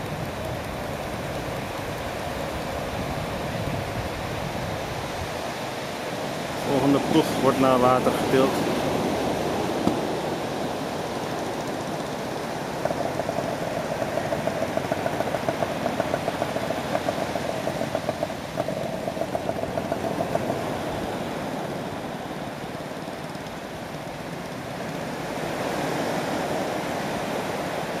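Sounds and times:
waves washing onto beach: 0.0 - 28.0
small engine pulsing: 6.7 - 28.0.

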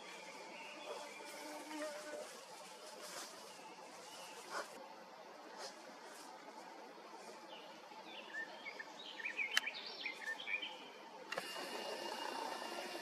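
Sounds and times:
steady hiss with high whine: 0.0 - 13.0
bird singing chirping phrases: 7.5 - 10.9.

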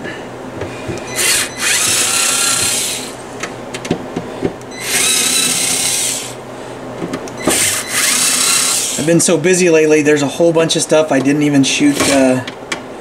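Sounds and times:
electric screwdriver whining: 1.1 - 3.2, 4.8 - 6.4, 7.4 - 9.1.

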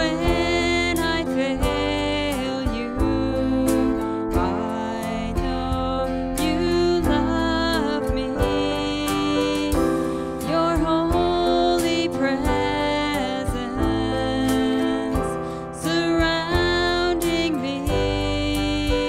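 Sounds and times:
acoustic guitar: 0.0 - 19.0
drum kit beat: 0.0 - 19.0
electric bass: 0.0 - 19.0
keyboard chords: 0.0 - 19.0
woman singing: 0.0 - 19.0.

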